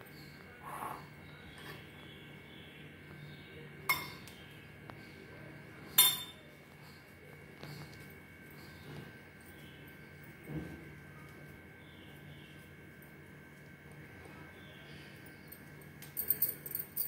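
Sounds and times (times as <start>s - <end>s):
metal spoon clinking glass bowl: 6.0s - 6.4s.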